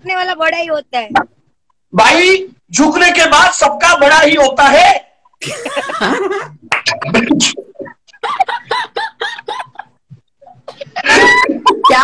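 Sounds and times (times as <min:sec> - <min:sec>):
people laughing: 0:05.4 - 0:06.7, 0:07.9 - 0:10.0, 0:10.8 - 0:12.0.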